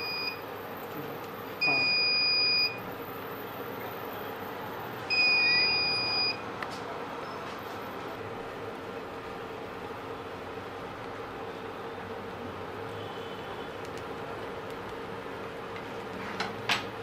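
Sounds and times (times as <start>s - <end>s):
long electronic beeps: 5.1s - 6.4s.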